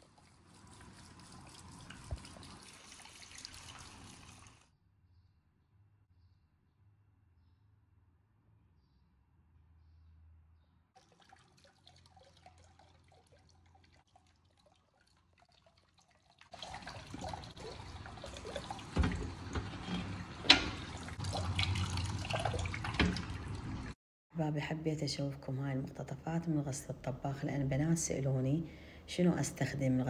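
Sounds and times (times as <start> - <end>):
tap water running into tub: 0.0 - 4.7, 11.0 - 24.0.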